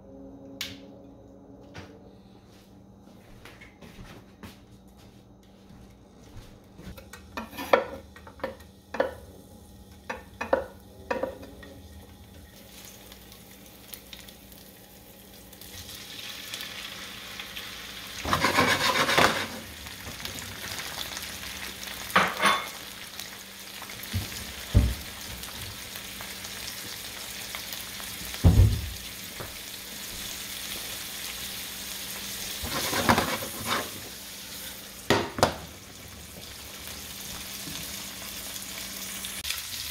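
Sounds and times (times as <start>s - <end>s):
oil sizzling in a pan: 7.4s - 39.9s
shrimp sizzling in hot oil: 12.3s - 39.9s.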